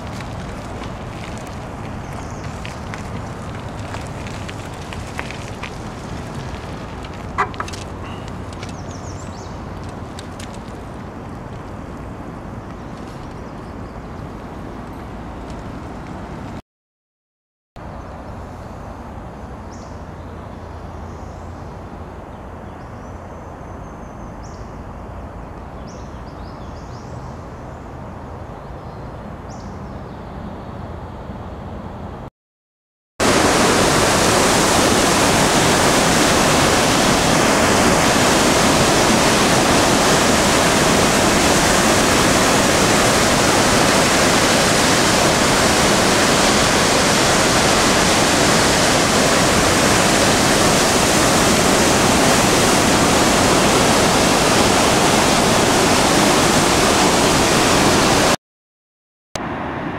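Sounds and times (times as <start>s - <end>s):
river water rushing: 0.0s - 11.9s, 33.2s - 58.4s
quiet outdoor ambience: 0.0s - 16.6s, 17.8s - 32.3s.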